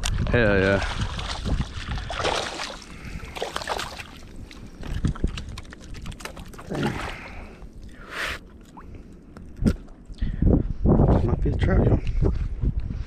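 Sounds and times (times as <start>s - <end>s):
wind on microphone: 0.0s - 13.0s
fish thrashing and splashing: 0.8s - 9.4s.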